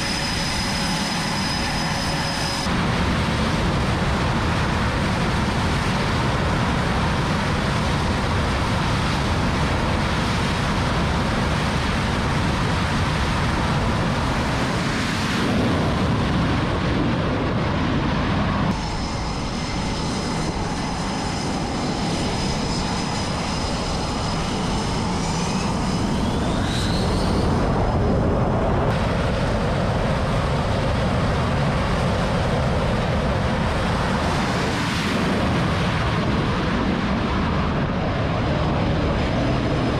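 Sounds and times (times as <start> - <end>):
thin high whines: 0.0 - 2.7, 18.7 - 27.8
jet engines roaring: 0.0 - 39.9.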